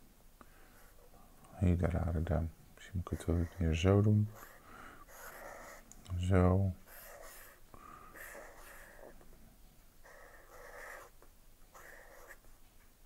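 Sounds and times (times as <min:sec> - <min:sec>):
marker scratching on paper: 0:03.1 - 0:05.9, 0:06.8 - 0:07.6, 0:08.2 - 0:09.2, 0:10.0 - 0:12.4.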